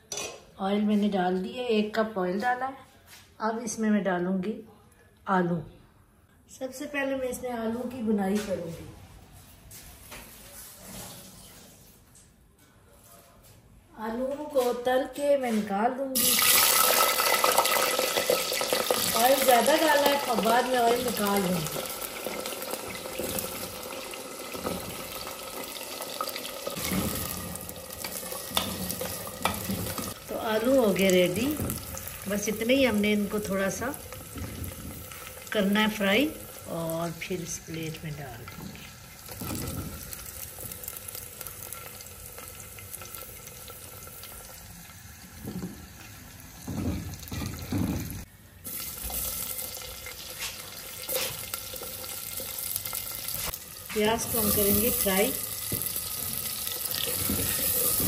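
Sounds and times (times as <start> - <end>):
potatoes sizzling in hot oil: 16.2 - 58.0.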